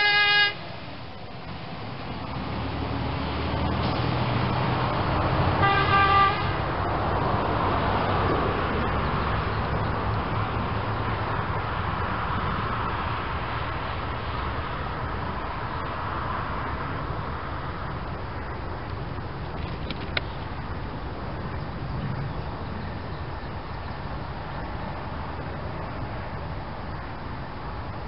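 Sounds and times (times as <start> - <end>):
short horn blast: 0.0 - 0.6, 5.6 - 6.7
rumble of vehicles: 0.0 - 28.0.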